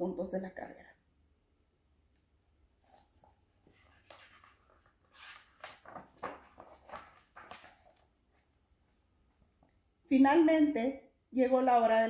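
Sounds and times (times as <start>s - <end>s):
book pages rustling: 3.6s - 9.0s.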